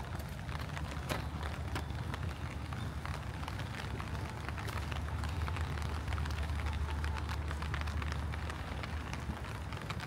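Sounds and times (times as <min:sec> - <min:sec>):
rain falling: 0:00.0 - 0:10.0
raindrops ticking close by: 0:00.0 - 0:10.0
steady low rumble: 0:00.0 - 0:10.0.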